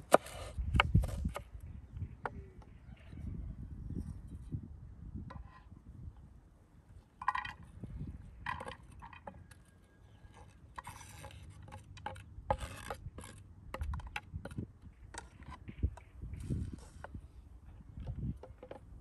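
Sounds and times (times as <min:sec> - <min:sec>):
knife scraping wooden board: 0:10.3 - 0:13.4.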